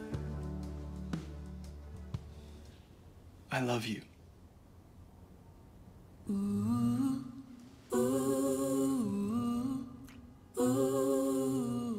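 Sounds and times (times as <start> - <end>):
slow wordless vocal melody: 0.0 - 1.7, 6.2 - 11.9.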